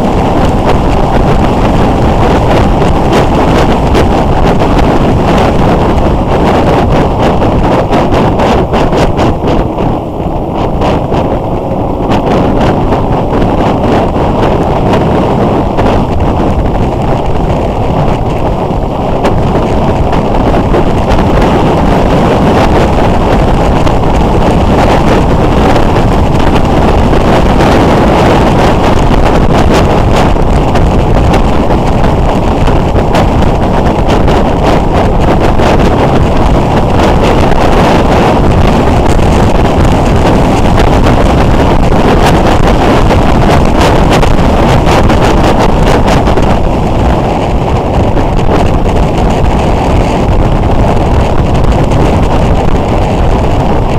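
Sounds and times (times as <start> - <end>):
motorcycle engine running: 0.0 - 53.9
wind rushing over microphone: 0.0 - 53.9.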